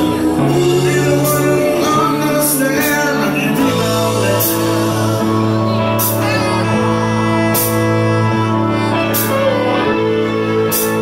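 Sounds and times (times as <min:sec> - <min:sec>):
rock band playing: 0:00.0 - 0:11.0.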